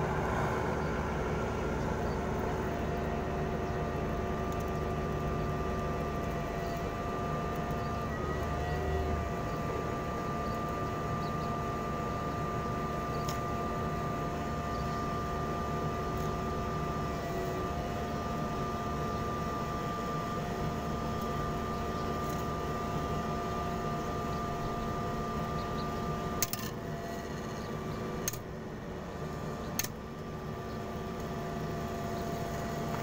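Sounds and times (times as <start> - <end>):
washing machine motor whine: 0.0 - 33.0
sharp clicks: 28.2 - 28.4, 29.8 - 30.0.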